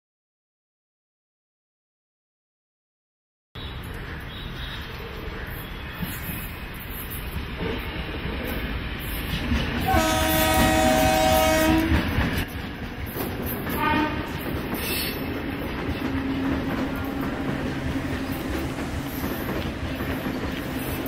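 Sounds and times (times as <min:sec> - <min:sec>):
train rumbling on rails: 0:03.7 - 0:21.0
train horn blasts: 0:09.8 - 0:12.1, 0:13.8 - 0:14.4.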